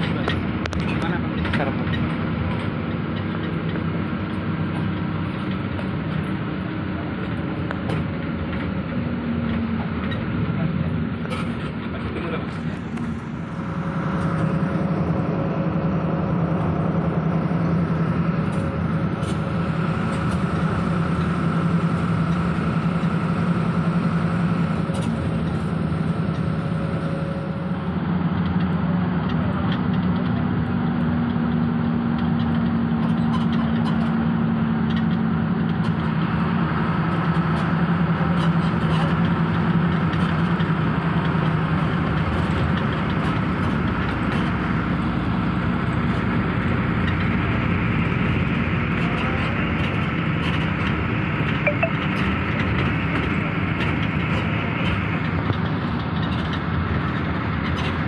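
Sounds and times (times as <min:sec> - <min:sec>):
bus engine drone: 0:00.0 - 0:58.0
road and tyre noise: 0:00.0 - 0:58.0.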